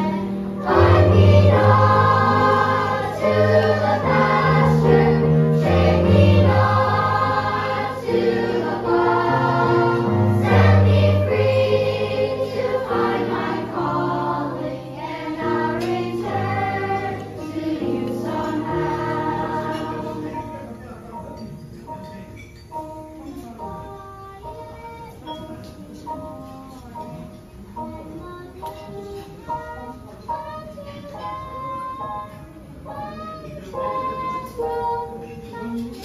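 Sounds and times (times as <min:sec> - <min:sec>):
children's choir singing: 0:00.0 - 0:21.3, 0:23.5 - 0:36.0
instrumental accompaniment: 0:00.0 - 0:36.0.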